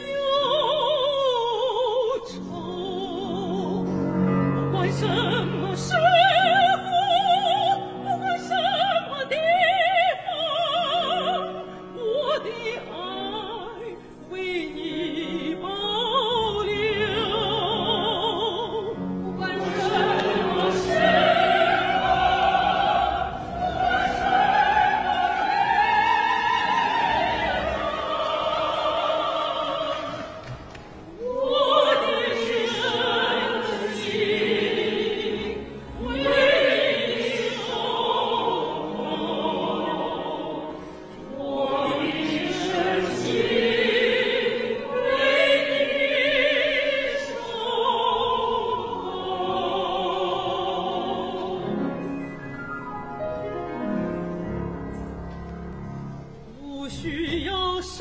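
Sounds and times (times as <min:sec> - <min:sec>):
woman singing with vibrato: 0:56.6 - 0:58.0.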